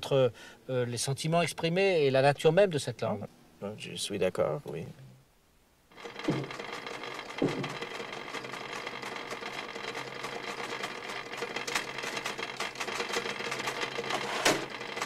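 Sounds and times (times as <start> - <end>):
typewriter keys clattering: 6.0 - 15.0.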